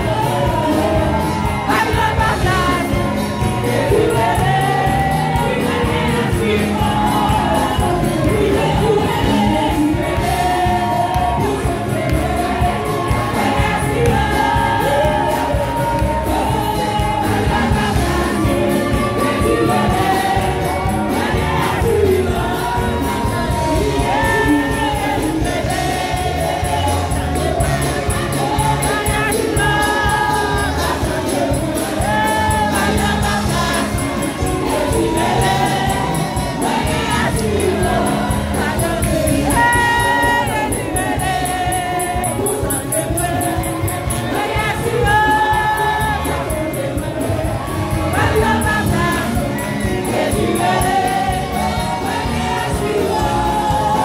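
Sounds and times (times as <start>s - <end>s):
congregation singing: 0.0s - 54.0s
musical accompaniment: 0.0s - 54.0s.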